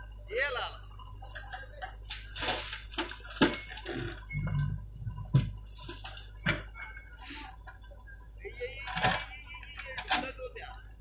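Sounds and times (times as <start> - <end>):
low steady hum: 0.0 - 11.0
machine clicks and knocks: 8.8 - 9.3.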